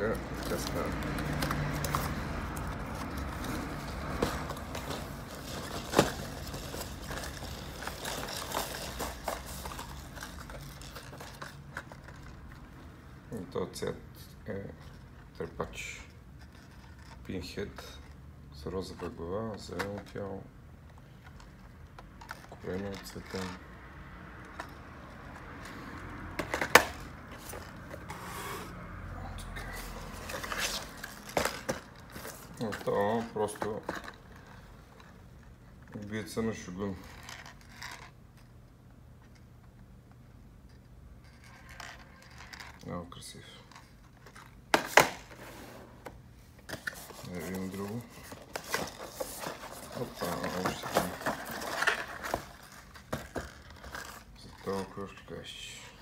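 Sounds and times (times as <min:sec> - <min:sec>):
paper and plastic rustling: 0:00.0 - 0:12.5, 0:29.6 - 0:35.2, 0:41.2 - 0:46.0, 0:46.6 - 0:55.4
plastic boxes clicking and knocking: 0:26.3 - 0:28.1, 0:46.6 - 0:54.2.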